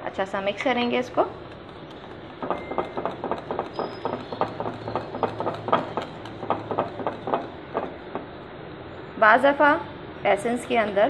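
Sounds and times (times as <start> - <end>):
whisk clicking against glass bowl: 1.1 - 8.4.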